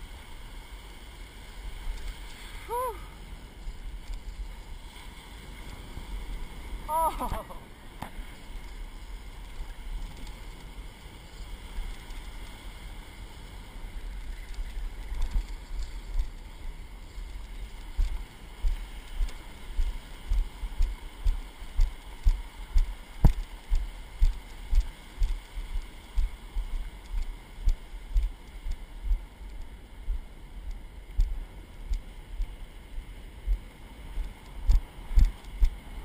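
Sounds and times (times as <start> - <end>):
faint breaking surf: 0.0 - 36.0
footsteps on wet sand: 14.7 - 36.0.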